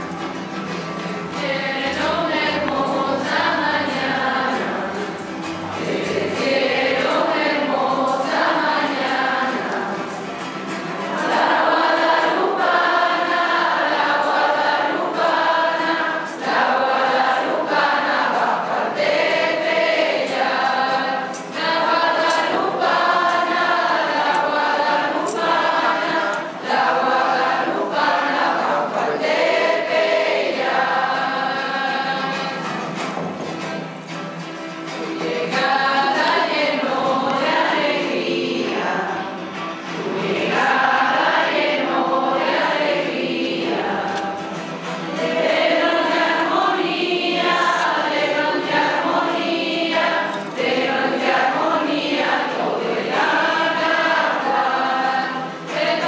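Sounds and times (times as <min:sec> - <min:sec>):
choir singing a hymn: 0:00.6 - 0:56.0.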